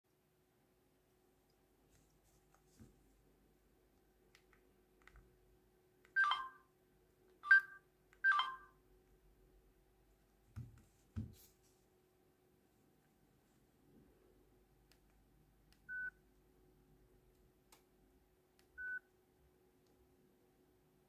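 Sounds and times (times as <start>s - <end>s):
phone keypad beeps: 6.1s - 6.7s, 7.4s - 8.8s, 15.9s - 16.2s, 18.8s - 19.1s.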